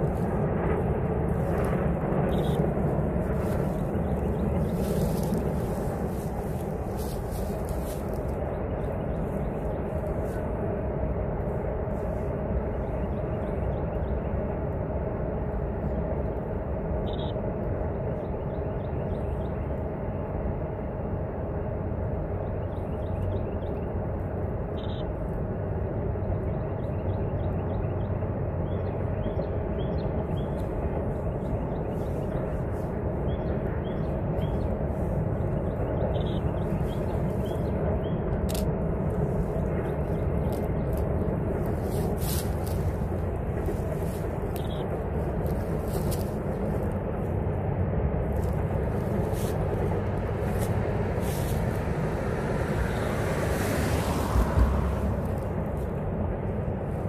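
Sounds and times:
freight train rumbling: 0:00.0 - 0:57.0.

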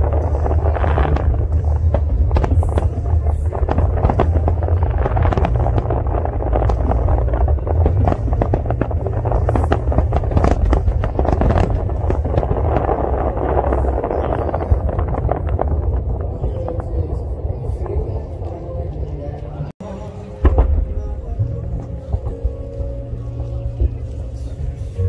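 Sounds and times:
fireworks bursting and crackling: 0:00.0 - 0:19.2
steady low rumble: 0:00.0 - 0:25.0.

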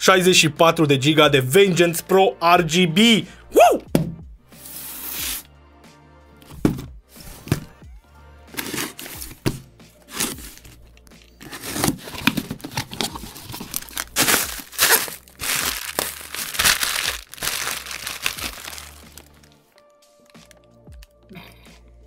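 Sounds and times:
packaging tearing and crinkling: 0:08.6 - 0:09.5, 0:10.1 - 0:10.8, 0:11.4 - 0:19.6.

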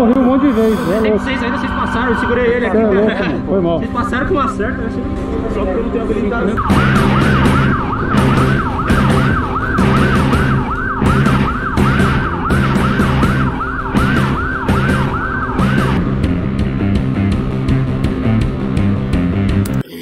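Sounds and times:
police siren yelping: 0:00.0 - 0:03.2, 0:06.6 - 0:16.0
background music: 0:00.0 - 0:20.0.

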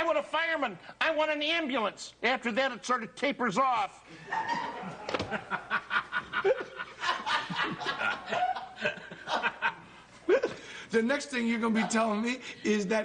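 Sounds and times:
man laughing: 0:04.2 - 0:10.6.

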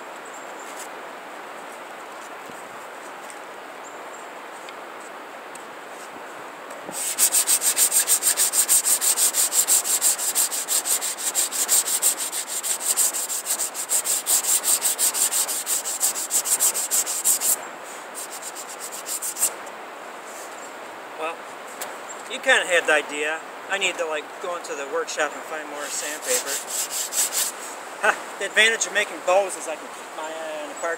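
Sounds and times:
sandpaper rubbing on wood: 0:06.9 - 0:17.6, 0:18.2 - 0:19.6, 0:25.8 - 0:27.8.

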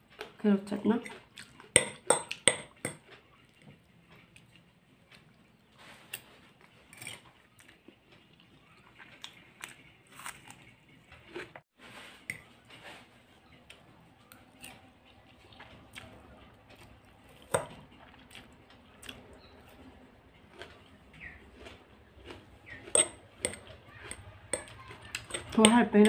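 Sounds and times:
chewing and crunchy bites: 0:01.0 - 0:11.6, 0:13.3 - 0:26.0
cutlery clicking on plate: 0:01.8 - 0:03.2, 0:22.9 - 0:26.0.

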